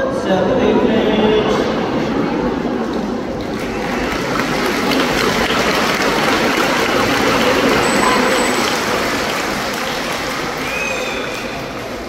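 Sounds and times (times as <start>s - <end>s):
dolphin tails splashing water: 3.5s - 12.0s.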